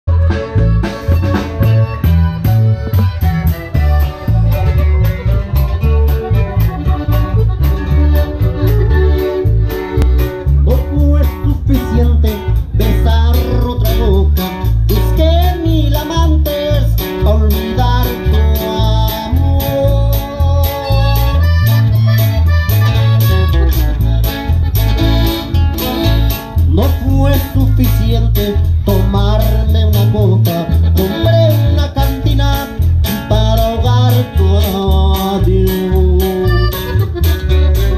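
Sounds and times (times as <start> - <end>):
live band through speakers: 0.1 - 37.9
person singing: 10.5 - 21.8, 26.7 - 37.2.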